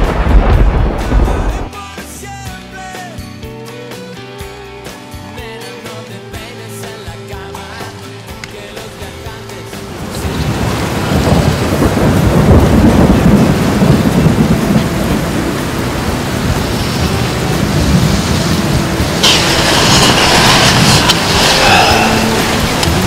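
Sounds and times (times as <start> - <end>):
thunder rumbling: 0.0 - 1.7, 9.9 - 23.0
rushing hiss of storm noise: 8.9 - 23.0.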